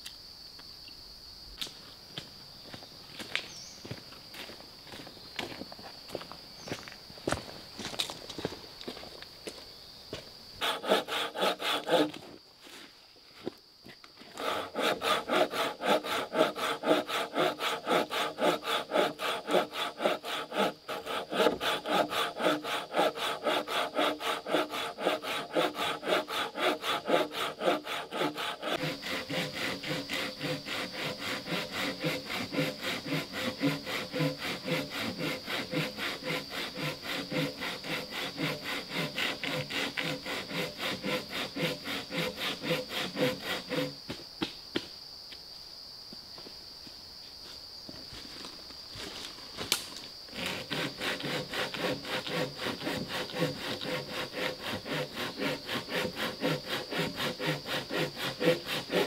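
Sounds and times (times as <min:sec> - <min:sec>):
hand saw cutting wood: 0:10.6 - 0:12.3, 0:14.3 - 0:44.0, 0:50.3 - 0:59.0.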